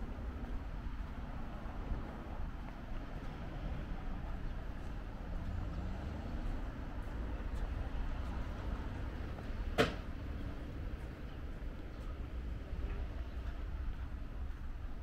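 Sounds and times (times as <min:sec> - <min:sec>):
distant traffic hum: 0:00.0 - 0:15.0
footsteps of person walking: 0:00.2 - 0:09.6.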